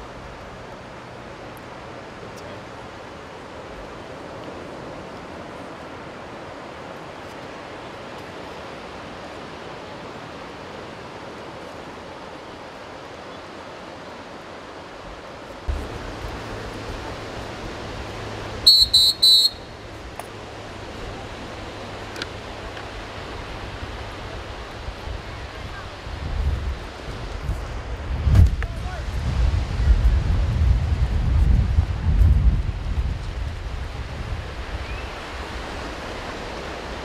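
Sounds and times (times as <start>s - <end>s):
surf washing: 0.0s - 37.0s
wind rumbling on microphone: 14.6s - 37.0s
shrill whistle blasts: 18.6s - 19.8s.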